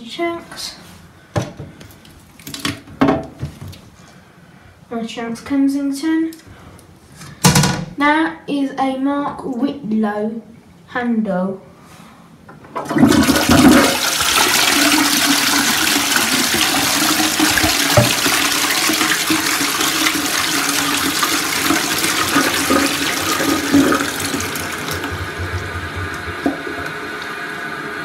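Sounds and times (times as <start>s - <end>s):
toilet flushing: 12.7s - 28.0s
steady hum: 21.4s - 28.0s.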